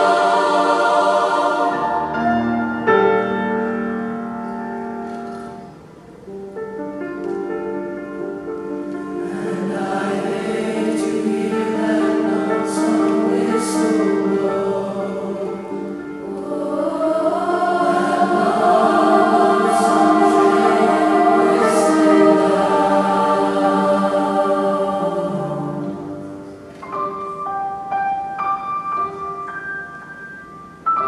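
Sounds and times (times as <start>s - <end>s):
choir singing in harmony: 0.0s - 4.6s, 8.1s - 26.6s.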